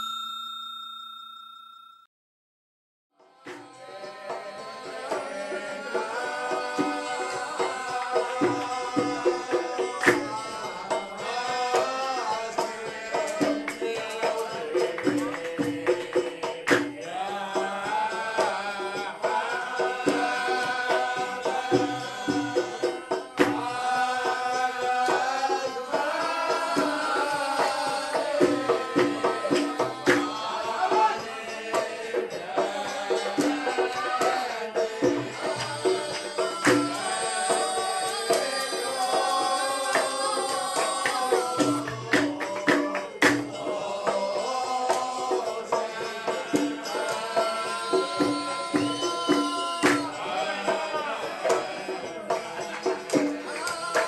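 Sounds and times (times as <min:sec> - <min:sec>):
background music with percussion: 0:03.2 - 0:54.0.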